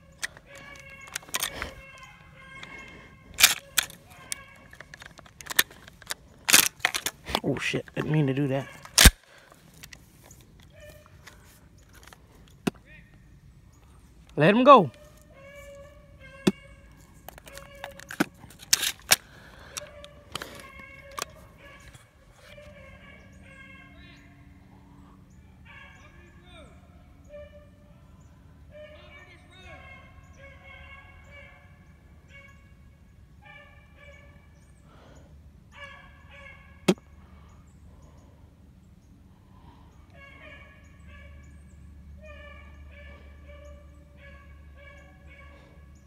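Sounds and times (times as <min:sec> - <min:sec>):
hunting dogs baying: 0:00.0 - 0:12.5, 0:13.7 - 0:38.6, 0:39.3 - 0:46.0
handling clicks and knocks: 0:00.1 - 0:10.7, 0:16.4 - 0:22.0
sharp crack: 0:03.4 - 0:08.1, 0:08.8 - 0:09.6, 0:17.5 - 0:21.2.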